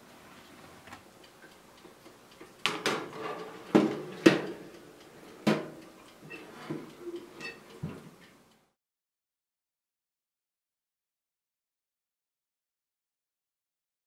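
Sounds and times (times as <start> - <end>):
metal tray clanking on oven rack: 2.7 - 4.6, 5.4 - 8.0.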